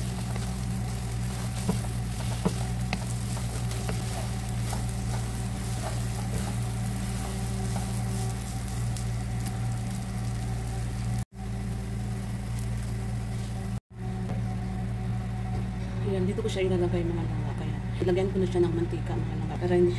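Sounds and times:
wooden spatula scraping pan: 0.0 - 9.5
rice sizzling in frying pan: 0.0 - 13.8
steady low hum: 0.0 - 19.9.

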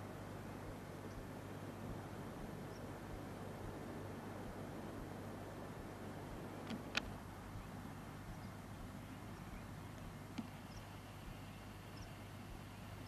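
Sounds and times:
camcorder hiss and hum: 0.0 - 13.0
sharp clicks: 6.6 - 7.2.

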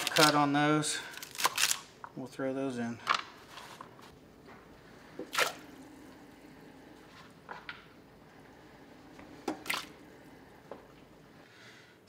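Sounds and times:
vegetables splashing into water: 5.2 - 5.6, 9.5 - 10.0.

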